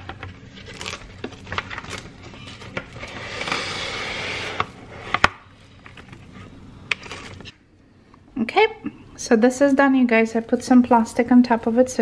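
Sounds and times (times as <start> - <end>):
cling wrap pulled off roll: 0.3 - 5.4.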